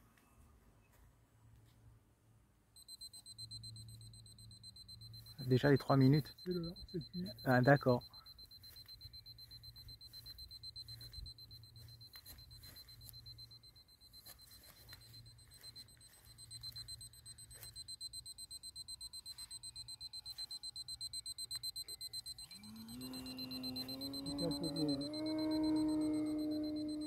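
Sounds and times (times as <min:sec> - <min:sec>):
rapid high-pitched timer beeps: 0:02.8 - 0:27.0.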